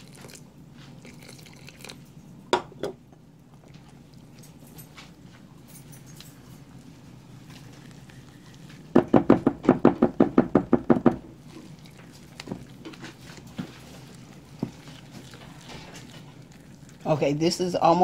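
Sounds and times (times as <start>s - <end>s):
utensil knocking on ceramic bowl: 9.0s - 11.2s.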